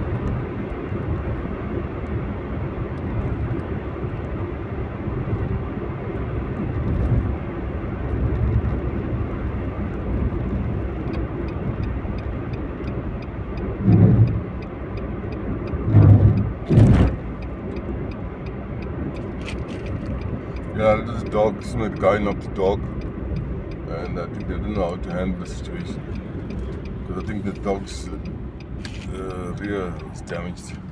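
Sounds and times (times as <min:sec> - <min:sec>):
car cabin road and engine rumble: 0:00.0 - 0:30.9
light regular ticking: 0:09.6 - 0:30.9
short loud bumps: 0:15.9 - 0:17.2.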